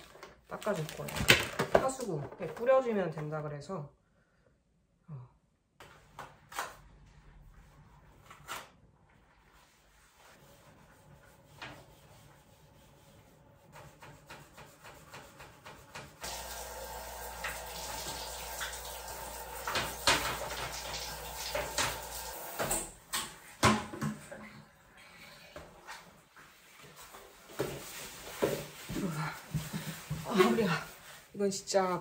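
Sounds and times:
shower hose spraying into toilet: 14.0 - 23.0.

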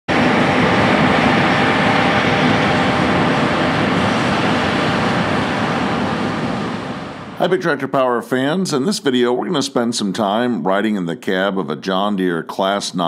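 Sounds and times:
combine harvester mechanical drone: 0.1 - 10.4.

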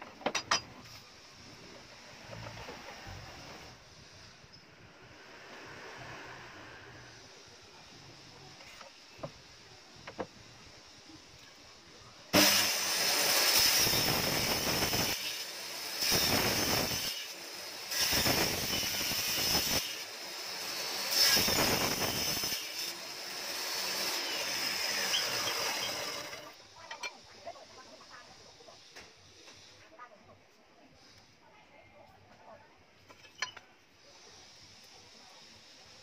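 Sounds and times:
table saw cutting wood: 12.4 - 26.6.

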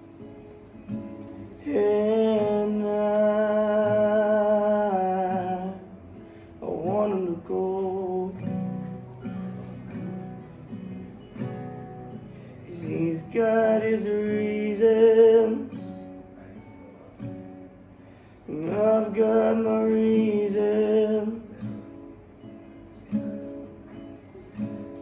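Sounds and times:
acoustic guitar: 0.0 - 25.0
man singing: 1.6 - 9.5, 12.5 - 16.0, 18.5 - 21.9.

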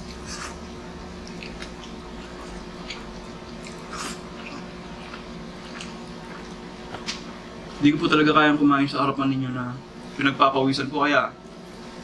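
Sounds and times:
wet chewing and eating sounds: 0.0 - 7.5
air conditioner humming: 0.0 - 12.0.

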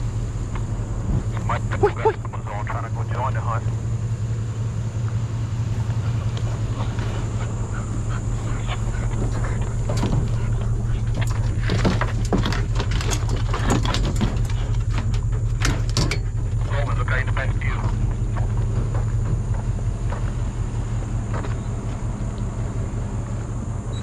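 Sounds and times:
truck engine idling: 0.0 - 24.0
sharp clicks and clatters: 8.7 - 20.3.

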